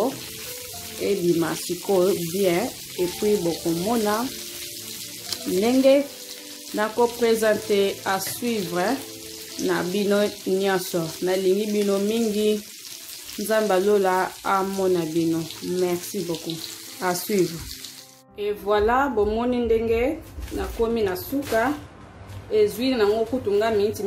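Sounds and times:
chicken sizzling in a pan: 0.0 - 18.2.

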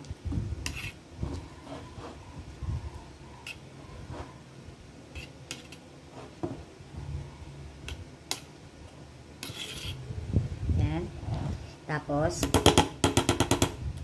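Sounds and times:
metal spoon scraping lightly: 0.6 - 2.3, 3.4 - 4.4, 5.1 - 6.4, 9.4 - 10.1.

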